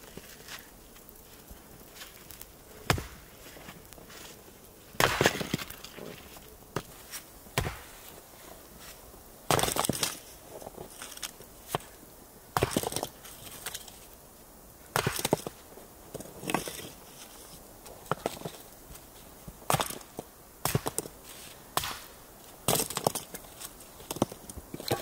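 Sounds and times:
axe splitting wood: 0:02.9 - 0:03.1, 0:07.6 - 0:07.9, 0:15.0 - 0:15.5.

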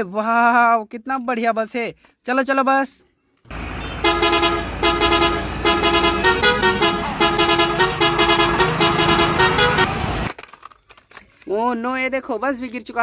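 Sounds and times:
horn tooting a tune: 0:03.5 - 0:10.3.

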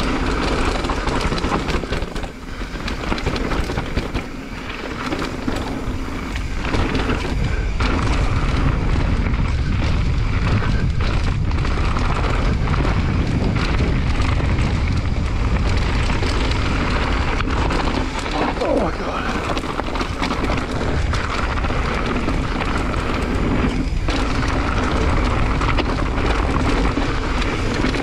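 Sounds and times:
bike rattles and knocks: 0:00.0 - 0:28.0
bike tyres rolling on dirt: 0:00.0 - 0:28.0
wind buffeting microphone: 0:00.0 - 0:28.0.

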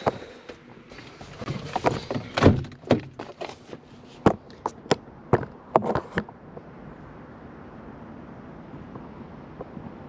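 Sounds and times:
van door knocks and clunks: 0:01.5 - 0:03.4.

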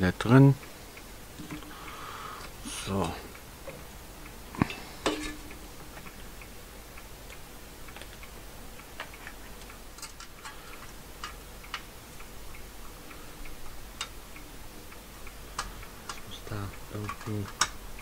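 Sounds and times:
sheet metal clicks and taps: 0:17.0 - 0:17.8.

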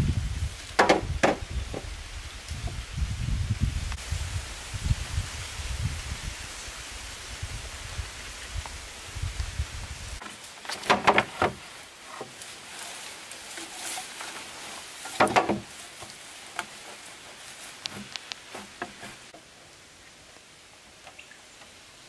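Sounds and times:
bamboo poles knocking together: 0:00.7 - 0:01.9, 0:10.2 - 0:17.1, 0:17.7 - 0:19.4.

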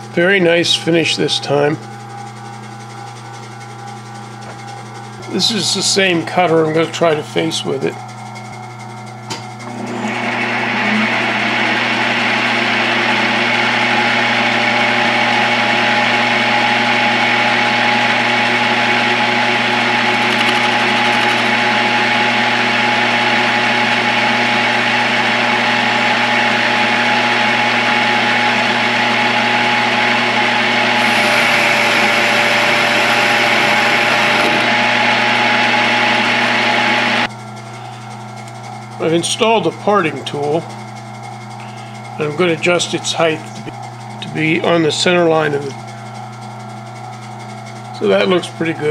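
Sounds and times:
lathe running hum: 0:00.0 - 0:48.9
lathe cutting metal: 0:09.7 - 0:37.3.

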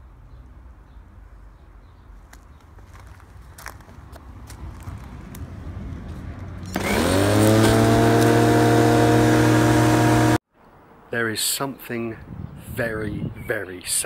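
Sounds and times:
electric lawnmower motor running: 0:06.7 - 0:10.4.

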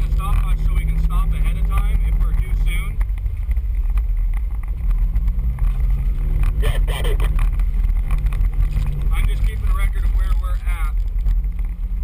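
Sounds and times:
voice: 0:00.0 - 0:03.0, 0:06.6 - 0:07.4, 0:09.1 - 0:11.0
vehicle engine running: 0:00.0 - 0:12.0.

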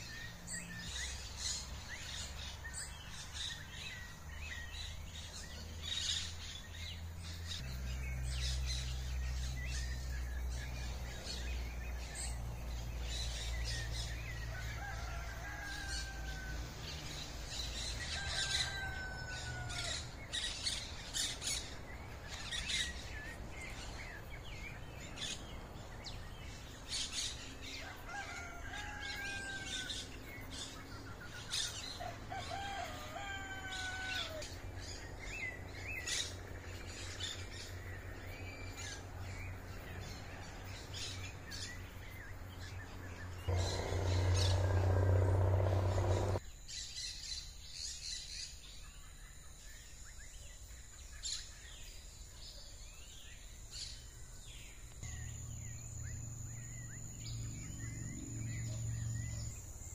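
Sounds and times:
birds chirping: 0:00.0 - 0:46.4
low rumble: 0:43.4 - 0:46.4.

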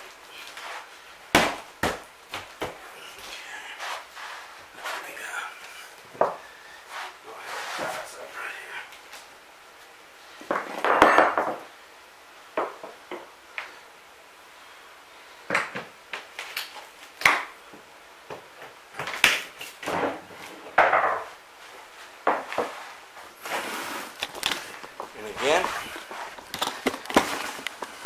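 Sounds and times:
wood cracking and creaking: 0:24.1 - 0:28.0.

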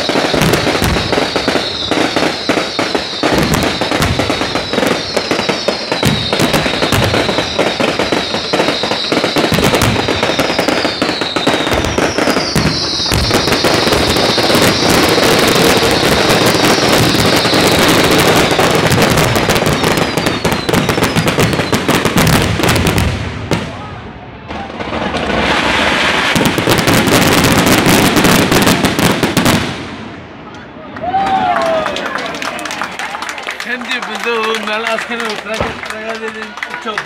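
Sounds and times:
falling firework whistles: 0:00.0 - 0:23.1
fireworks crackling and banging: 0:00.0 - 0:37.0.

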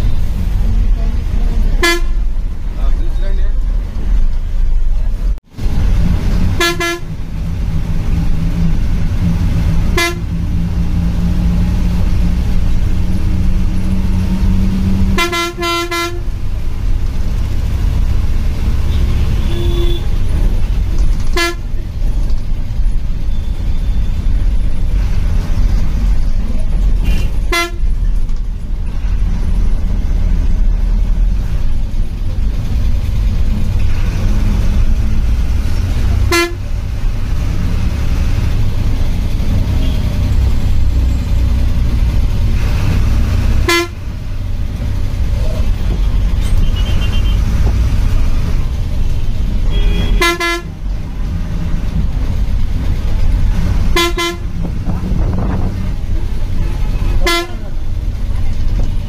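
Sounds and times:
bus engine low rumble: 0:00.0 - 0:59.0
horn toots: 0:01.7 - 0:02.3, 0:06.5 - 0:07.2, 0:09.9 - 0:10.4, 0:15.0 - 0:16.3, 0:18.8 - 0:20.2, 0:21.3 - 0:21.8, 0:27.0 - 0:27.9, 0:36.2 - 0:36.8, 0:42.5 - 0:44.1, 0:46.4 - 0:47.8, 0:49.6 - 0:50.8, 0:53.8 - 0:55.7, 0:56.6 - 0:57.8.

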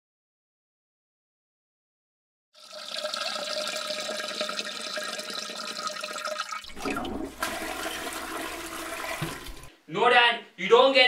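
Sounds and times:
water rushing through pipes: 0:02.6 - 0:09.7.

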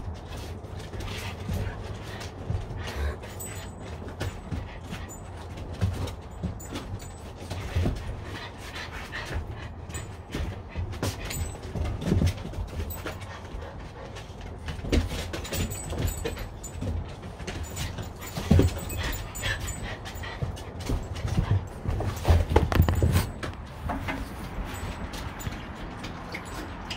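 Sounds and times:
dogs making excited noises: 0:00.0 - 0:26.9
knocks and thumps: 0:14.7 - 0:26.9.

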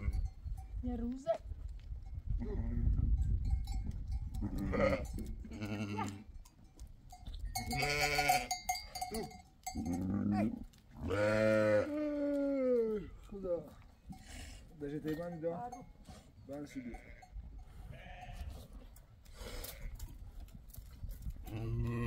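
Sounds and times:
goats bleating: 0:04.4 - 0:06.2, 0:07.6 - 0:13.1, 0:17.9 - 0:18.5.

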